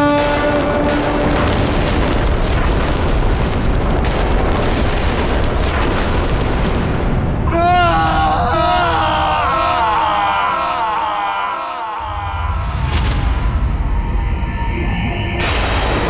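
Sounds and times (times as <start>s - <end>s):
heavy rumbling boom: 0.0s - 8.2s, 12.1s - 14.5s
wavering drawn-out cry: 7.5s - 12.9s.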